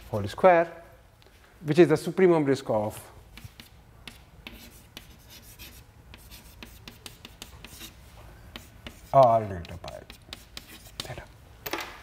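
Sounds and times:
chalk writing on chalkboard: 3.3 - 11.3.

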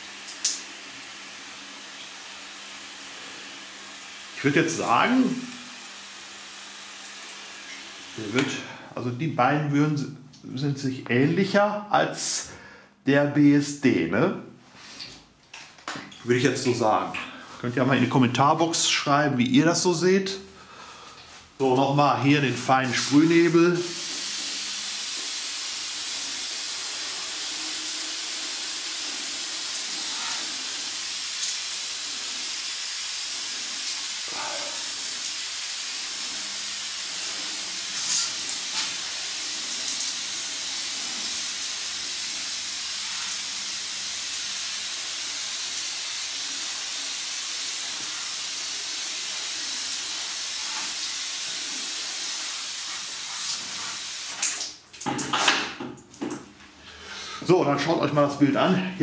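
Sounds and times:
pressure sprayer misting water: 22.8 - 54.6.

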